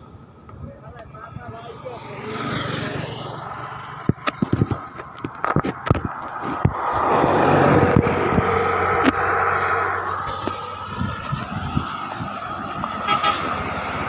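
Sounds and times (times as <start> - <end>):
bus driving past: 2.0 - 5.2, 6.2 - 14.0
sharp clicks and knocks: 4.0 - 7.0.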